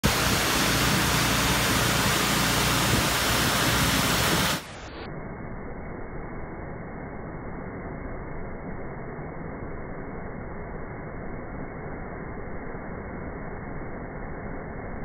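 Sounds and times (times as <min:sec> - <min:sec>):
pressure washer spraying water: 0:00.0 - 0:04.8.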